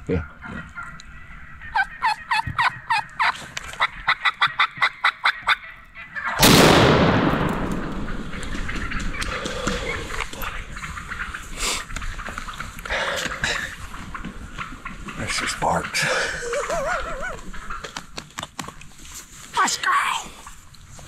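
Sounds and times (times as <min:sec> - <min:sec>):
turkey calls: 0:00.0 - 0:06.5, 0:07.5 - 0:20.2
shotgun blast: 0:06.4 - 0:08.1.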